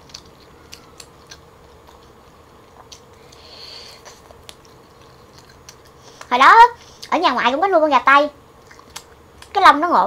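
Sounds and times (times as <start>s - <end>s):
wet mouth clicks while chewing: 0.0s - 6.3s, 8.6s - 9.6s.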